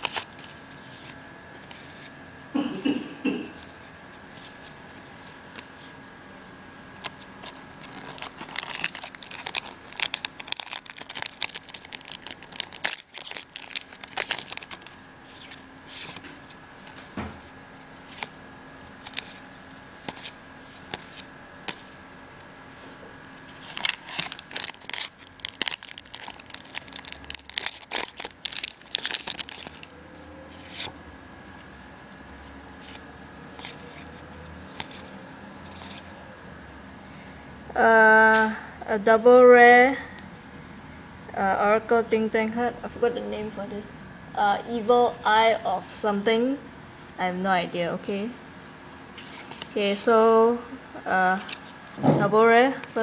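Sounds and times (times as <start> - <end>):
foil wrapper crinkling and tearing: 0.0 - 0.4, 7.0 - 16.2, 23.5 - 30.9
cards rustling and sliding: 0.0 - 2.1, 4.3 - 17.1, 18.0 - 18.4, 19.0 - 22.5, 23.4 - 31.0, 32.8 - 36.2, 49.2 - 49.8, 51.3 - 51.8.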